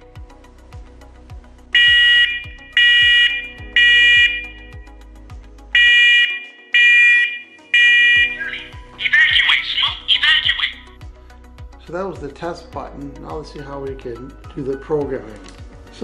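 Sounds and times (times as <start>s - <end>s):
smoke alarm shrill beeps: 1.8s - 4.7s, 5.8s - 8.9s.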